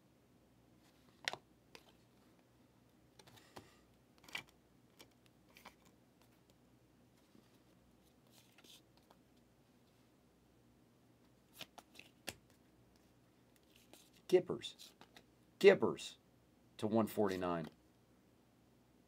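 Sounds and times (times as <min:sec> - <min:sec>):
trading cards rustling and clicking: 0:01.0 - 0:02.2, 0:03.2 - 0:06.6, 0:07.2 - 0:09.4, 0:11.4 - 0:15.3.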